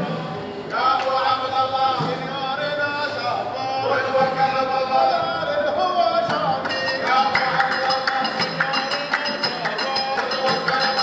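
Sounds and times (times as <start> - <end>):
percussion beat with jingling: 6.2 - 11.0.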